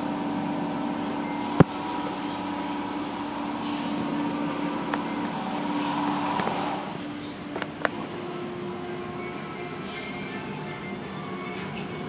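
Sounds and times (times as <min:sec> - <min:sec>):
car wash machinery humming: 0:00.0 - 0:12.0
water spraying on vehicle: 0:01.4 - 0:08.8.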